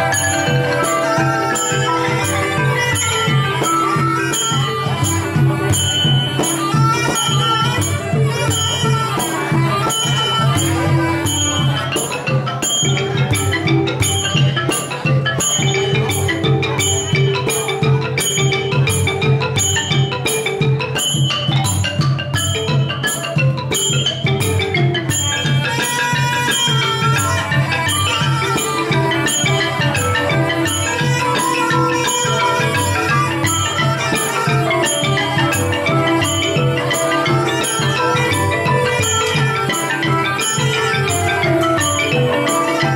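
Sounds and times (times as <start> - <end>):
reed oboe: 0.0 - 12.0, 25.2 - 42.9
percussion steady beat: 0.0 - 42.9
xylophones and gong circle: 0.0 - 42.9.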